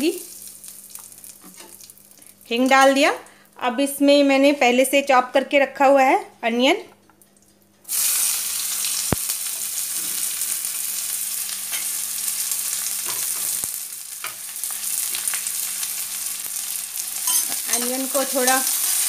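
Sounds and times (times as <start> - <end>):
onions sizzling in hot oil: 0.0 - 2.1, 7.9 - 19.0.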